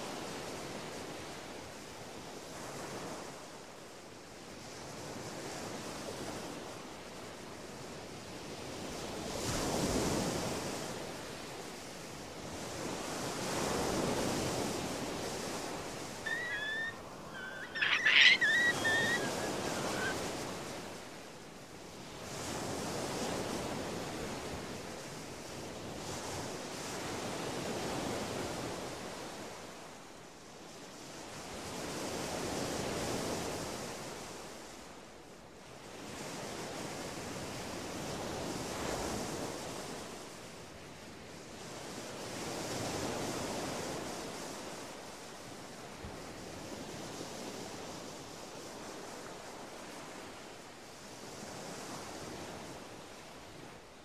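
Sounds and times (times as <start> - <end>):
short high chirps: 16.3 - 20.1.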